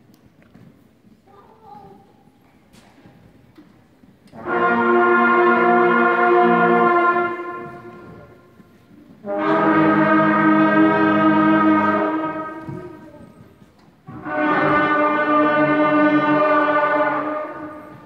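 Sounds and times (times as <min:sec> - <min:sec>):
concert band holding chords: 0:09.2 - 0:13.1, 0:14.1 - 0:18.0.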